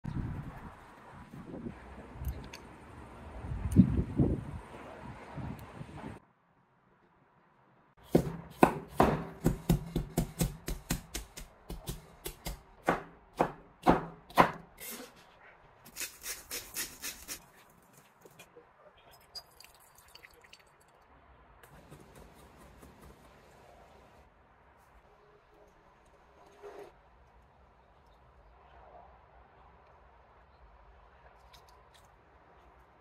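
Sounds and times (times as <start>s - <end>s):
cleaver chopping on wooden board: 8.1s - 14.6s.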